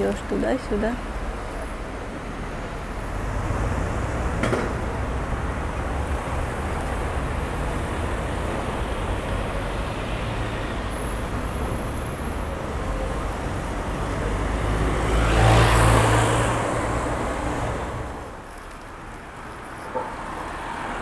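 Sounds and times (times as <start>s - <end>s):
passing cars: 0.0s - 21.0s
vehicle passing close: 3.2s - 18.6s.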